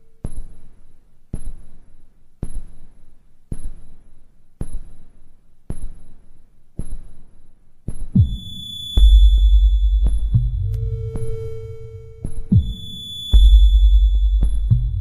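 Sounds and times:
deep heartbeat thumps: 7.9 - 11.6, 12.2 - 15.0
faint high tone: 8.3 - 14.5.

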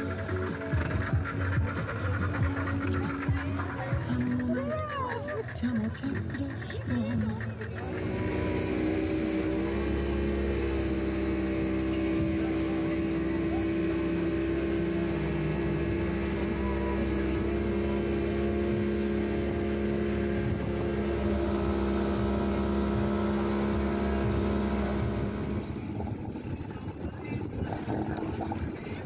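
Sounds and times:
outboard motor running: 0.0 - 29.0
water rushing and spray: 7.9 - 29.0.

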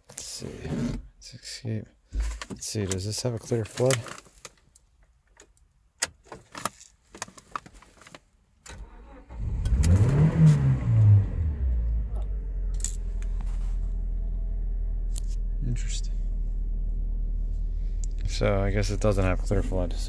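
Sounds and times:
car engine cranking and starting: 8.6 - 20.0
engine revving: 8.9 - 20.0
car engine idling: 10.7 - 20.0.

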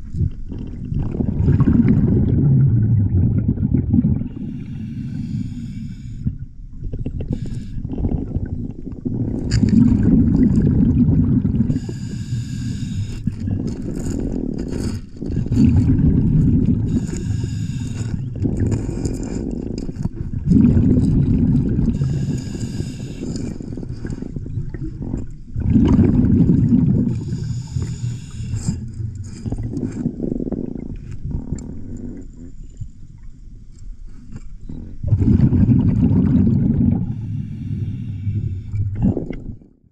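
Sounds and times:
exhaled bubbles rumbling: 0.0 - 39.9
regulator hissing inhale: 4.3 - 6.5, 7.2 - 8.0, 11.6 - 15.6, 16.8 - 20.0, 21.8 - 24.4, 27.1 - 30.6, 37.0 - 38.9.

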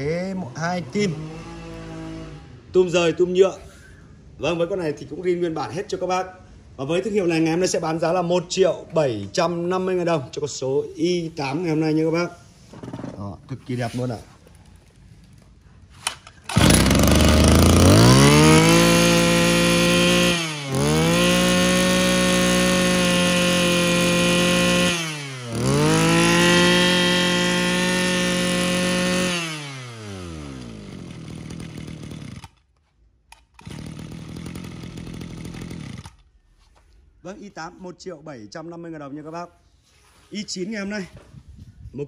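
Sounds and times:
brush cutter engine revving: 0.0 - 2.5, 16.0 - 32.6, 33.4 - 36.3.

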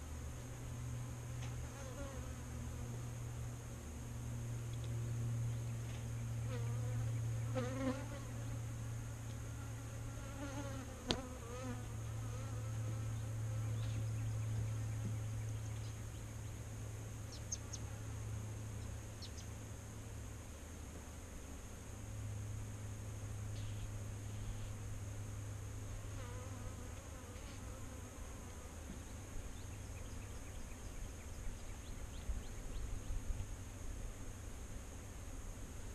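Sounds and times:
bees buzzing: 6.5 - 8.7, 9.4 - 15.4.

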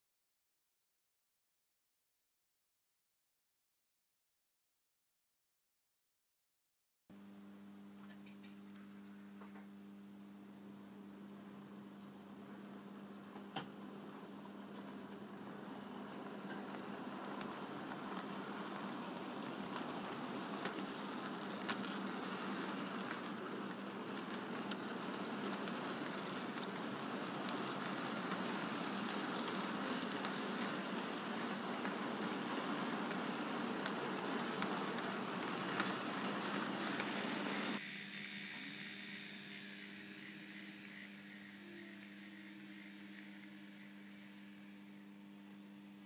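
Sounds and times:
model locomotives humming: 12.4 - 45.9
model train motor hum: 13.9 - 45.2
model train wheels clattering: 15.6 - 37.8.

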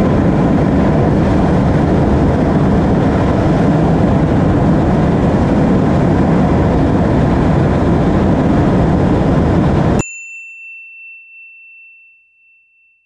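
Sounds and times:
loud wind rush: 0.0 - 10.0
bell-like ding: 10.0 - 13.0.

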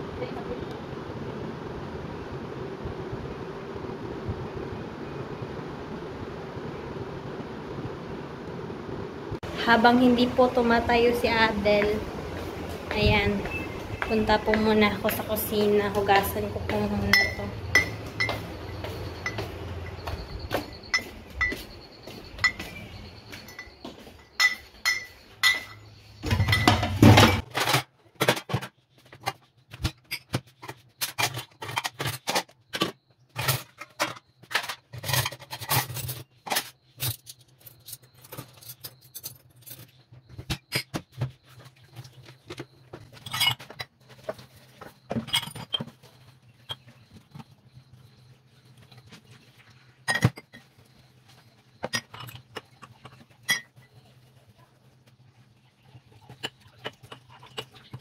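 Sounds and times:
dishes clinking in a sink: 13.2 - 28.7, 29.8 - 41.6, 42.4 - 47.5, 50.0 - 51.0, 51.7 - 54.0, 56.2 - 58.0.

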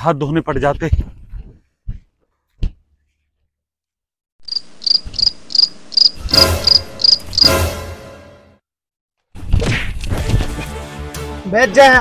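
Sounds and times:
cricket chirping: 4.4 - 7.6.

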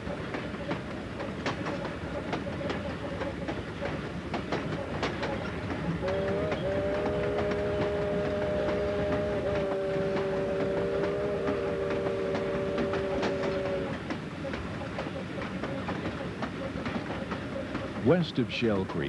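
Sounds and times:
train rumble: 0.0 - 19.0
wheels clicking on rail joints: 0.0 - 19.0
steam locomotive whistle: 5.9 - 14.0.

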